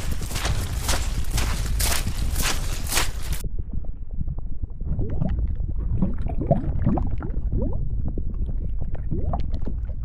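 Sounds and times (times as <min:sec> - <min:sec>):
steady low rumble: 0:00.0 - 0:10.0
bubbling gurgling lava: 0:03.5 - 0:10.0.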